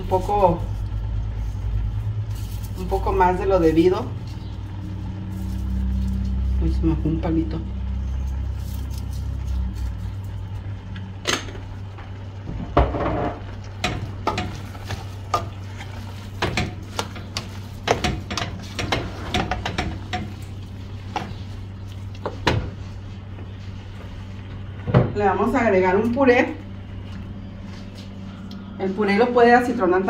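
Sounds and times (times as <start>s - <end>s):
steady low hum: 0.0s - 30.0s
utensil scraping a cooking pot: 12.9s - 23.7s.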